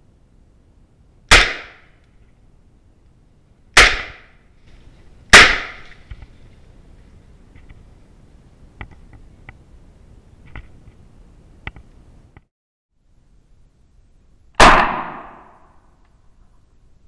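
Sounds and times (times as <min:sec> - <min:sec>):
loud rifle shots: 0:01.3 - 0:01.9, 0:03.8 - 0:04.3, 0:05.3 - 0:05.9, 0:14.6 - 0:15.7.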